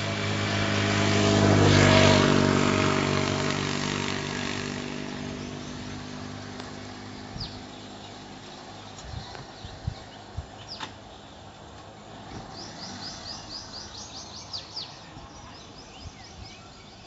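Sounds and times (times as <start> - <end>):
vehicle engine passing by: 0.0 - 17.0
bird chirps: 7.2 - 17.0.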